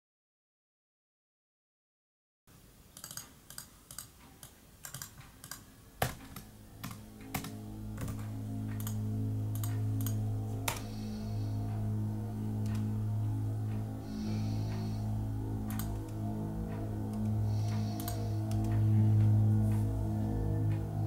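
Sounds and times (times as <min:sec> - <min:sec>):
laptop keyboard typing: 0:03.0 - 0:10.8, 0:17.1 - 0:18.7
low droning music tone: 0:05.2 - 0:21.0.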